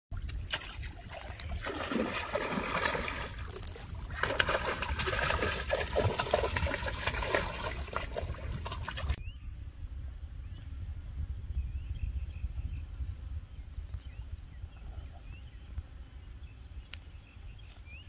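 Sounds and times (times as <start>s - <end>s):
fish splashing in water: 0.4s - 9.2s.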